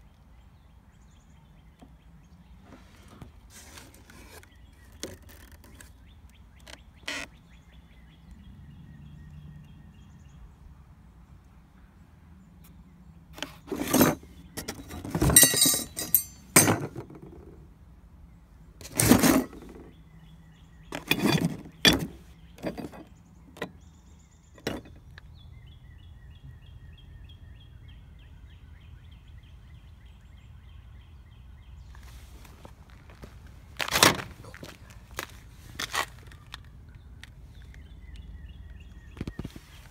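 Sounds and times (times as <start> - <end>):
small bird chirping: 4.3 - 10.5
metal parts knocking and clinking: 13.6 - 17.5, 18.8 - 19.9, 20.9 - 23.7, 24.6 - 25.2.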